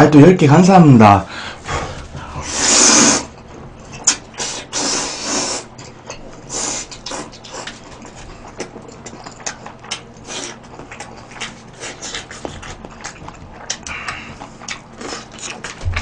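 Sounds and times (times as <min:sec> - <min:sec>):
person slurping noodles: 0:02.3 - 0:03.3, 0:04.0 - 0:05.7
wet chewing: 0:02.3 - 0:16.0.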